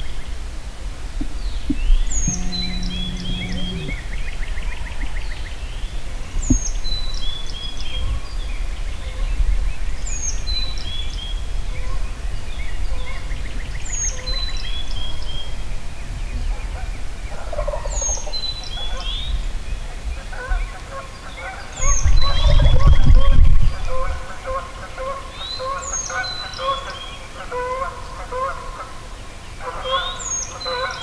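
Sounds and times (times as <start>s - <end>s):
steady low rumble: 0.4s - 6.8s.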